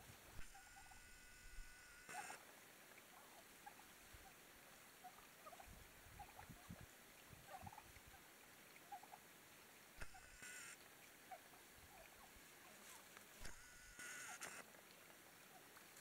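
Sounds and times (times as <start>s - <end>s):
turkeys clucking softly: 0.0s - 16.0s.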